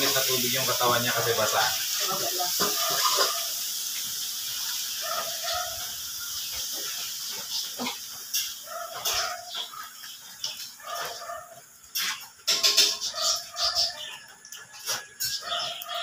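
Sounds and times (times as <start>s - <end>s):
steady hiss: 0.0s - 8.7s
animal calls: 8.6s - 16.0s.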